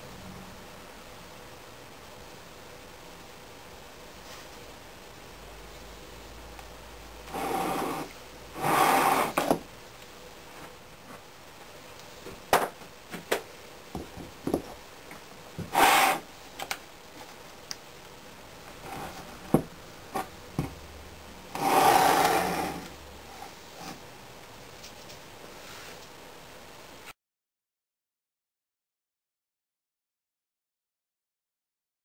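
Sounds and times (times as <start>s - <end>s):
wood and sand scraping on wood: 7.3s - 9.6s, 15.6s - 16.3s, 18.8s - 20.3s, 21.5s - 24.0s.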